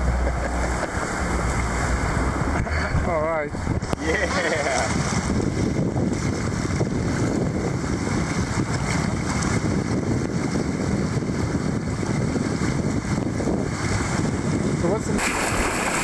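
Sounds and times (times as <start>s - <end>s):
wind buffeting microphone: 0.0s - 16.0s
whitewater rushing: 15.2s - 16.0s.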